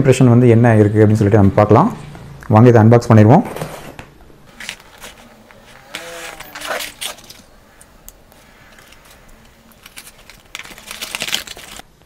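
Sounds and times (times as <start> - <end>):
cardboard and tape scraping: 4.5 - 11.8.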